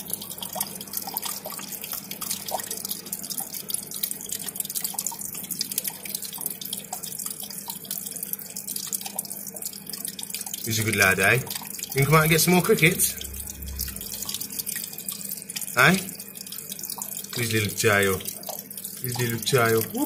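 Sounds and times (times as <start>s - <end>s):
small water drips: 0.0s - 20.0s
water trickling down rocks: 0.0s - 20.0s
faint low hum: 10.7s - 14.6s.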